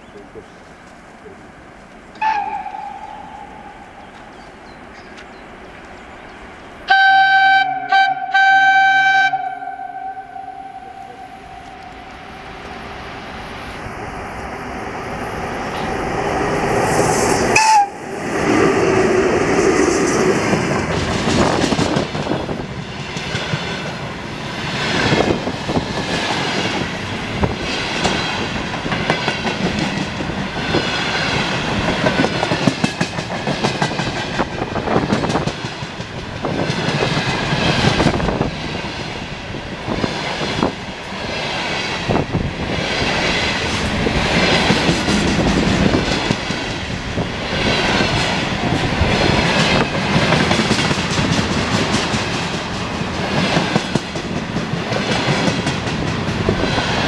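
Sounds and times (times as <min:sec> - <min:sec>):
train passing: 0:00.0 - 0:57.0
train horn blasts: 0:02.2 - 0:04.2, 0:06.9 - 0:12.4, 0:17.6 - 0:18.0.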